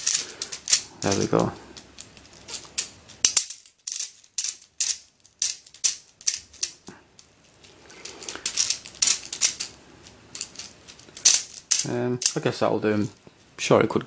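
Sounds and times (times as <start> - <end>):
plastic puzzle clicking: 0.0 - 7.3, 10.4 - 12.4.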